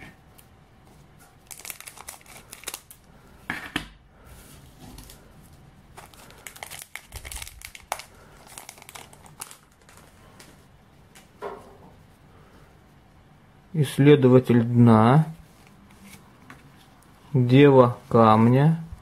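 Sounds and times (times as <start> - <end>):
foil wrapper crinkling: 1.4 - 3.1, 6.0 - 10.2
scissors snipping foil pack: 1.5 - 3.0.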